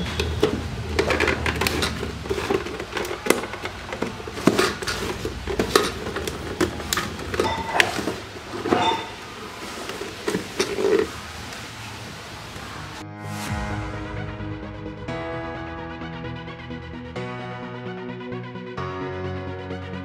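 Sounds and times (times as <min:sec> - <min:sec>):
plastic clicks and knocks: 0:00.0 - 0:09.0
plastic creaks: 0:00.0 - 0:11.6.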